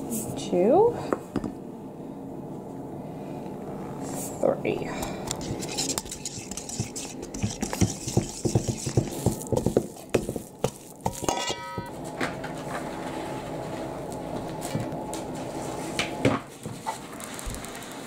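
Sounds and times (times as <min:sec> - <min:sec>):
utensil stirring dough in metal bowl: 0:05.1 - 0:11.9.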